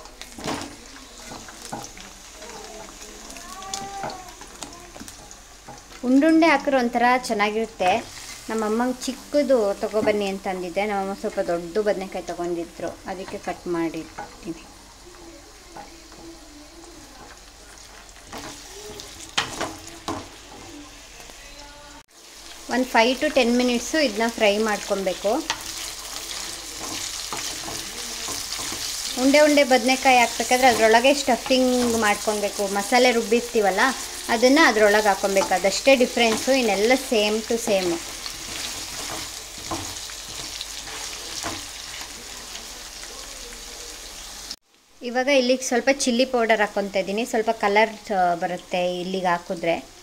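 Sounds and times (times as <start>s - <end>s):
wooden spatula scraping and stirring: 0.0s - 6.0s, 12.1s - 21.4s, 23.6s - 42.6s
vegetables sizzling in hot oil: 0.0s - 50.0s
wooden spatula knocking pan: 18.2s - 20.7s.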